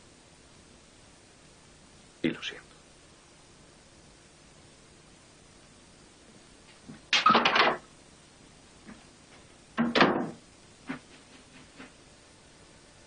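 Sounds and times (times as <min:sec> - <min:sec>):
loud clatter of knocks: 0:07.1 - 0:07.9, 0:09.8 - 0:11.0
door: 0:09.8 - 0:10.4.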